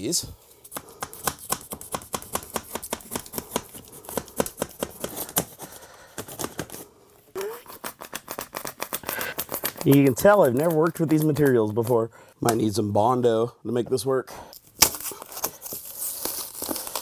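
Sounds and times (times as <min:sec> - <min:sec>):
knife cutting foam board: 0:00.7 - 0:05.7, 0:07.4 - 0:12.0.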